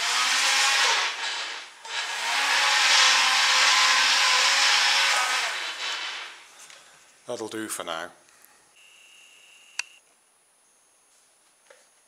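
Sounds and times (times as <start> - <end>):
toy helicopter motors whirring: 0.0 - 6.3.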